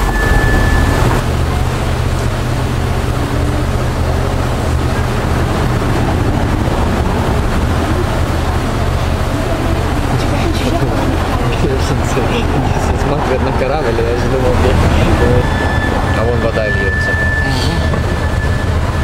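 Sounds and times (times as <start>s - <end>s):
short high tone: 0.0s - 1.2s, 15.1s - 19.0s
diesel engine humming: 0.0s - 19.0s
wind rumbling on microphone: 0.0s - 19.0s.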